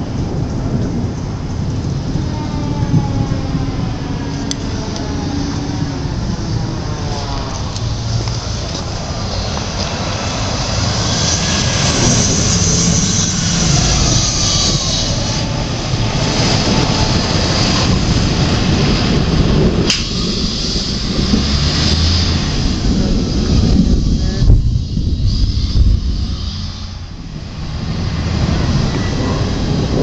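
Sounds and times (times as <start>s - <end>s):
fire engine driving past: 0.0s - 30.0s
faint siren wailing: 1.9s - 18.7s
sharp click: 19.9s - 20.2s.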